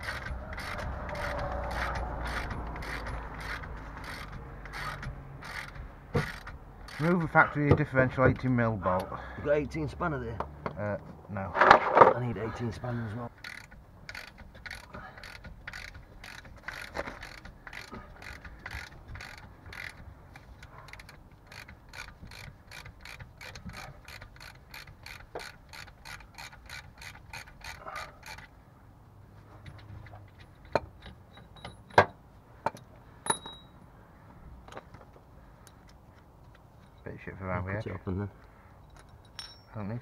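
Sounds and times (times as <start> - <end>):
ratchet wrench clicking: 0.0 - 7.4, 13.4 - 28.5.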